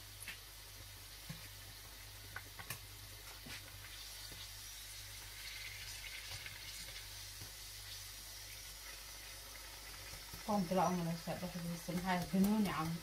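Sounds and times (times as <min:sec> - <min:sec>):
hot oil sizzling: 0:00.0 - 0:13.0
metal turner clicking on pan: 0:10.1 - 0:13.0.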